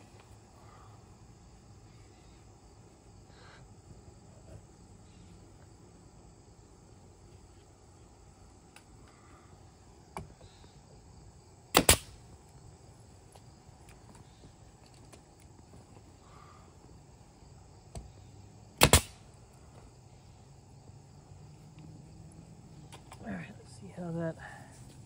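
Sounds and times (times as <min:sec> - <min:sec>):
nail gun firing: 0:11.7 - 0:12.2, 0:18.8 - 0:19.2.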